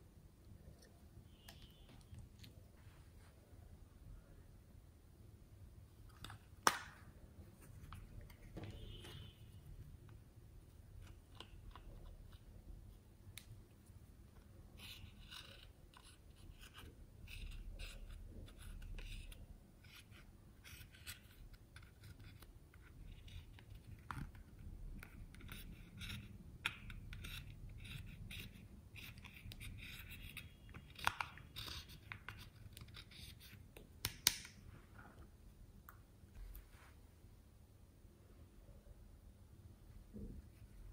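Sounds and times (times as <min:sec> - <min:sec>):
spatula scraping eyeshadow: 0:14.4 - 0:33.8.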